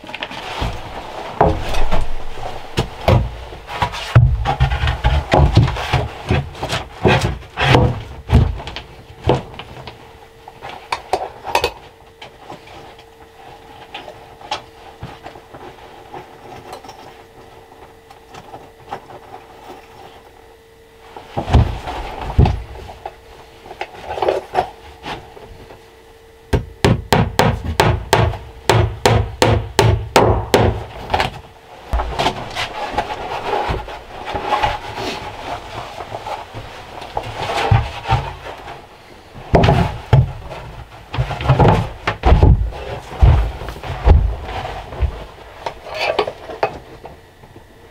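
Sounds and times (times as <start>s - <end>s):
hammer nailing boards: 26.6s - 30.8s.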